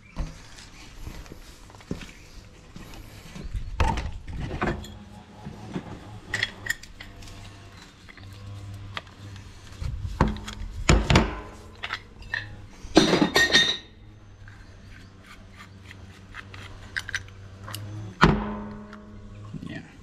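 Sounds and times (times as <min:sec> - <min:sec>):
steady low hum: 0:00.5 - 0:20.0
metal scraping clatter: 0:04.3 - 0:19.4
metal parts knocking and clinking: 0:16.4 - 0:17.8.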